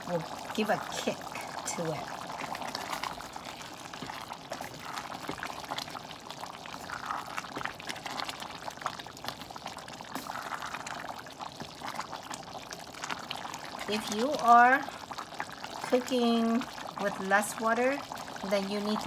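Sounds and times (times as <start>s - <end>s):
rice bubbling in broth: 0.0s - 19.0s
wooden spoon ticks and scrapes: 2.3s - 9.5s, 10.1s - 12.4s.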